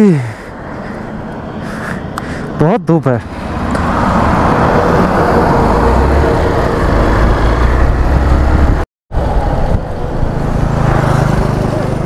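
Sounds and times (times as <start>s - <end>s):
wind rushing over microphone: 3.2s - 11.6s
motorcycle engine drone: 3.2s - 12.0s.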